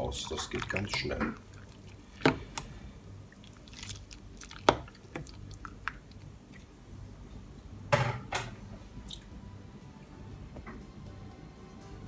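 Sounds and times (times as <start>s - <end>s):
spatula stirring: 0.0s - 6.3s
water bubbling in pot: 0.0s - 6.9s.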